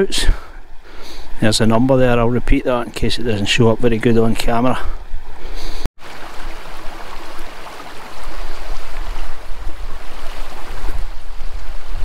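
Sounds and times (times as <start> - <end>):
wind buffeting microphone: 8.0 - 12.0.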